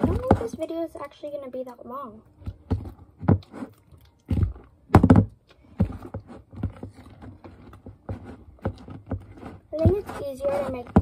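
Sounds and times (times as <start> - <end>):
thuds: 4.3 - 7.0.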